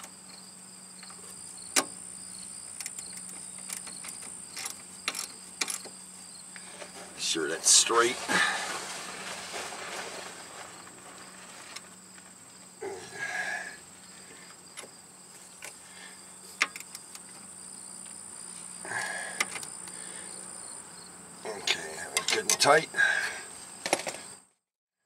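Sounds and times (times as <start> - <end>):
high-pitched insect trill: 0.0 - 8.6, 10.5 - 24.4
metal hand tools clinking: 21.6 - 22.8.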